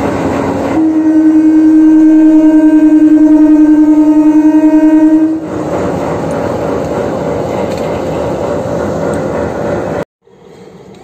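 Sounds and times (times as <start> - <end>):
locomotive horn blaring: 0.7 - 5.6.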